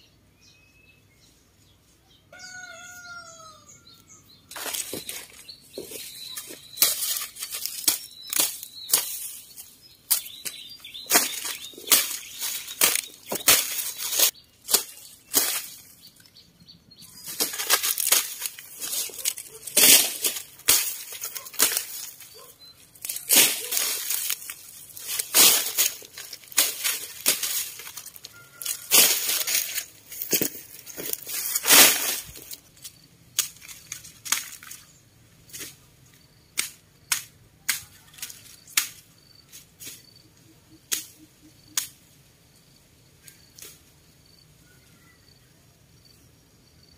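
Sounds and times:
dry leaves rustling: 0:04.3 - 0:35.8
machete chopping corn stalks: 0:04.5 - 0:15.9, 0:17.2 - 0:22.3, 0:23.0 - 0:34.8, 0:36.5 - 0:40.1, 0:40.9 - 0:42.0.

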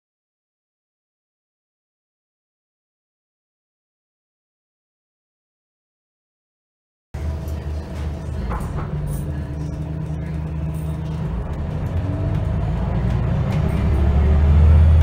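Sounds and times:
bus engine drone: 0:07.2 - 0:15.0
interior rattles and clicks: 0:07.2 - 0:15.0
transmission whine rising: 0:07.2 - 0:15.0.

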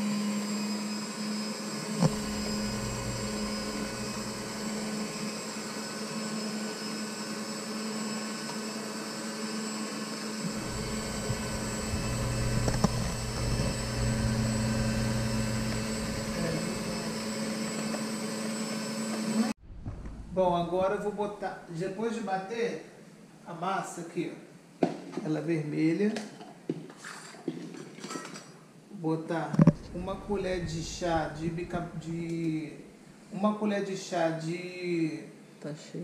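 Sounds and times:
electric hand mixer running: 0:00.0 - 0:19.6, 0:29.9 - 0:32.1.

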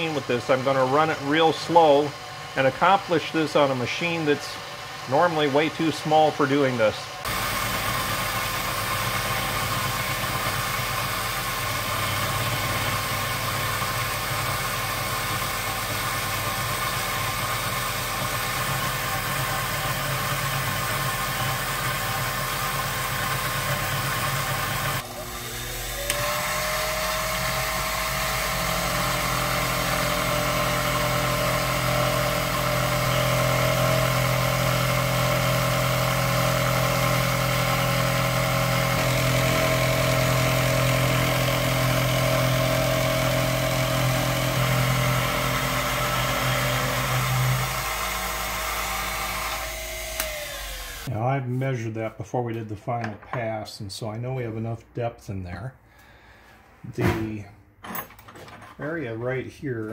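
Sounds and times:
milling machine cutting metal: 0:00.0 - 0:51.1
steady machine whine: 0:23.7 - 0:51.1.

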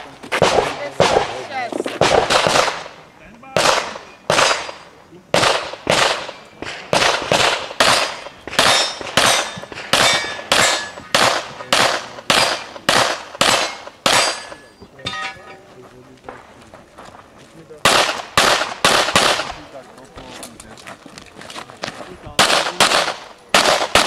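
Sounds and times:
pistol shots: 0:00.3 - 0:14.7, 0:17.8 - 0:19.7, 0:22.4 - 0:24.0.

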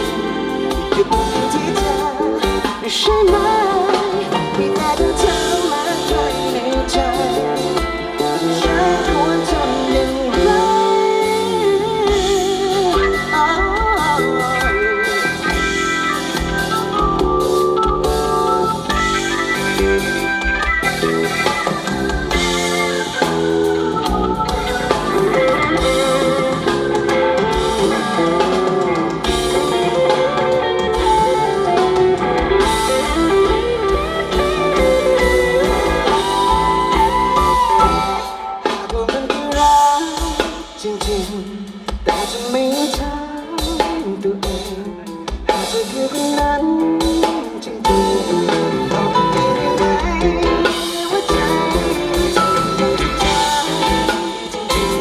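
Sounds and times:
drum kit: 0:00.0 - 0:55.0
guitar: 0:00.0 - 0:55.0
pitch-bending melody: 0:03.4 - 0:38.8.

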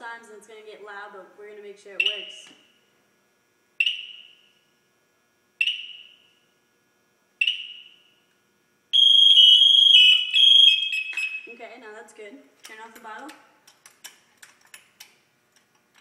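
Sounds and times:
shrill two-tone alarm: 0:09.0 - 0:11.5.

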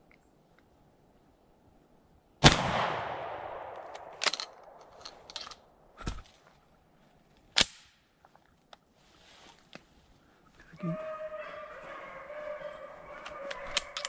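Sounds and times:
echo through woods: 0:01.6 - 0:06.9, 0:10.2 - 0:14.0
shotgun blast: 0:02.4 - 0:04.2
metallic gun handling clicks: 0:03.7 - 0:05.7, 0:13.5 - 0:14.0.

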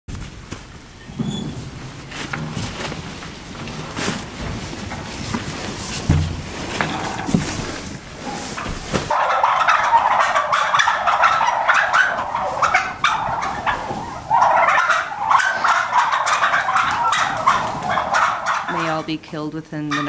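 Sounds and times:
turkeys gobbling: 0:06.6 - 0:20.0.

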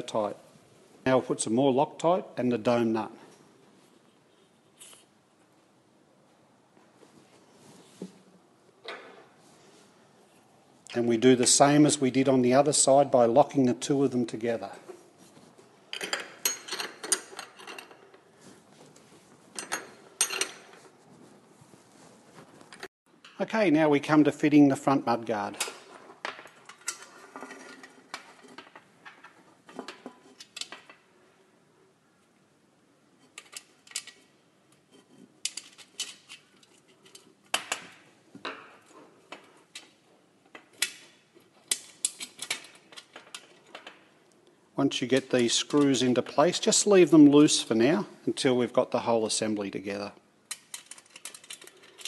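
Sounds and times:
metal parts clinking on mudguard: 0:35.4 - 0:44.1, 0:50.5 - 0:52.0.

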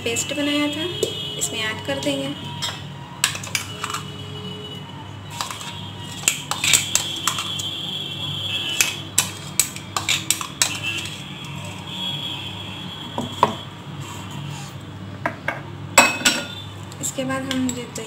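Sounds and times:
spoon clinking against glass: 0:16.0 - 0:16.6.

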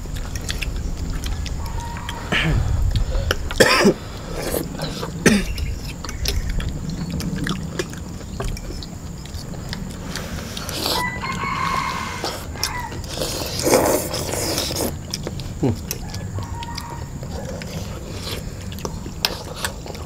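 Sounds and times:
people chewing: 0:00.0 - 0:20.0
people slurping noodles: 0:01.2 - 0:06.5, 0:09.7 - 0:16.2.

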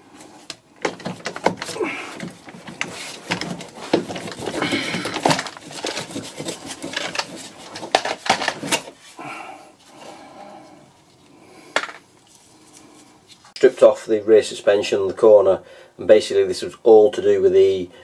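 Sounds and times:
metal clanks and scrapes: 0:00.8 - 0:09.0.

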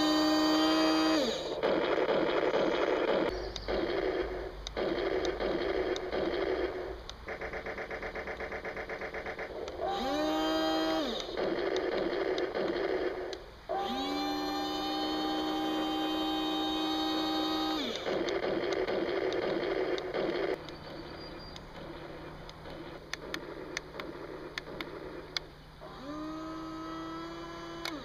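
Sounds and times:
fast electronic rattling: 0:00.0 - 0:25.4
electronic toy engine hum: 0:00.0 - 0:28.0
noisy rumbling: 0:00.0 - 0:28.0.

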